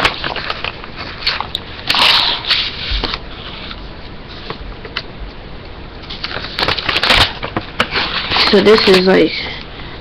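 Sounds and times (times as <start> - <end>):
paper rustling and crinkling: 0.0 - 4.6, 6.0 - 9.6
microphone hiss: 0.0 - 10.0.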